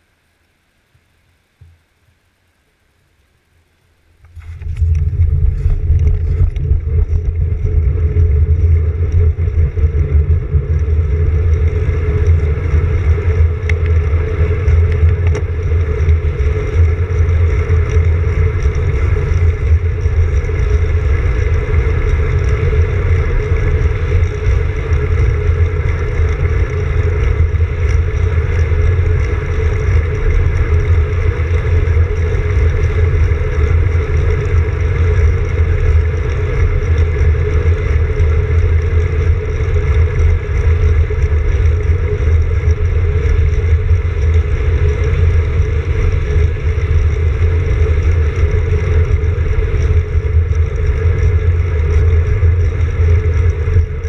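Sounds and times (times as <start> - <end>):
tyres rolling on asphalt: 4.3 - 54.0
wind buffeting microphone: 4.3 - 54.0.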